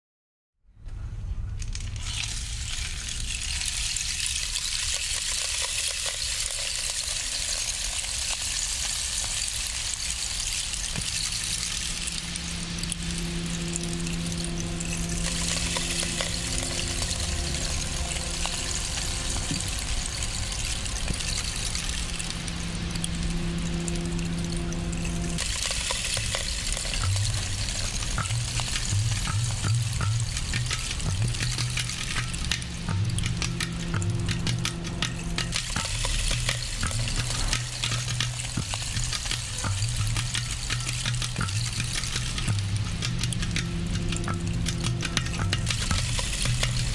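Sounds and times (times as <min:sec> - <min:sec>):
rainstick trickling hiss: 0:01.5 - 0:46.9
low electronic drone: 0:09.2 - 0:46.9.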